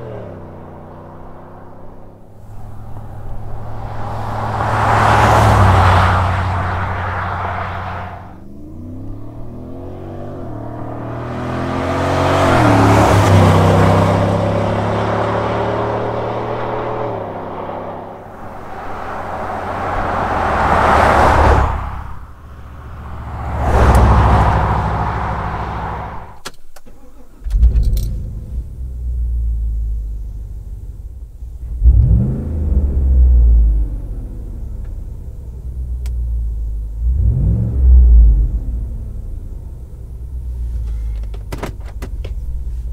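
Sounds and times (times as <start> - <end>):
truck passing by: 0.0 - 26.4
truck engine accelerating: 0.0 - 42.9
low exhaust rumble: 27.4 - 42.9.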